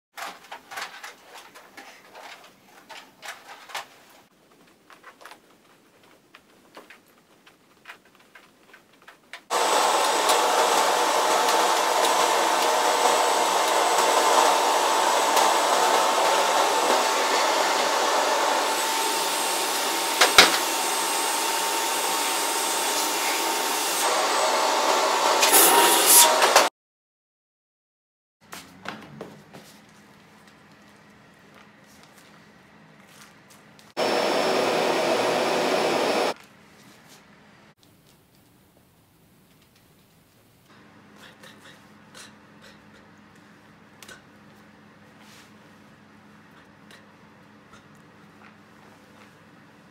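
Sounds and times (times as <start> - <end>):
faint clicks and knocks: 0.2 - 9.5
vacuum cleaner motor whining: 9.5 - 26.7, 34.0 - 36.4.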